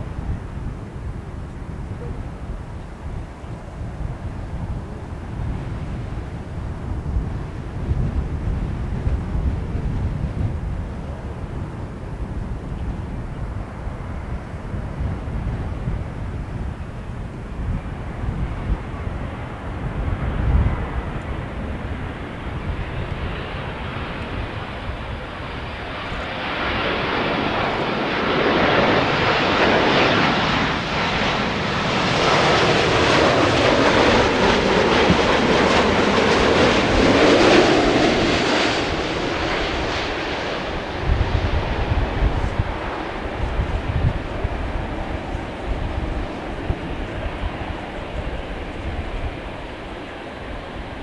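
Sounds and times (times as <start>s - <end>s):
jet aircraft engine roar: 0.0s - 51.0s
wind rumble on microphone: 0.0s - 51.0s.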